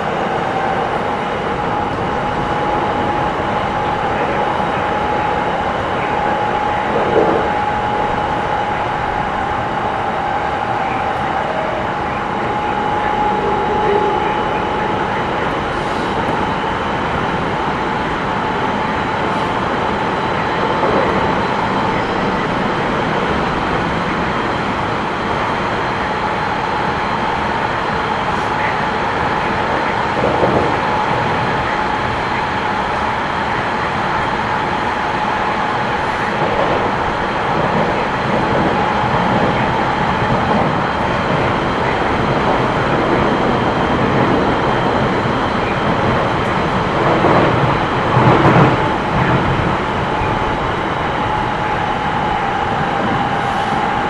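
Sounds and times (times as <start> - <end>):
steady high tone: 0.0 - 20.7, 48.2 - 54.0
train wheels rumbling on track: 0.0 - 54.0.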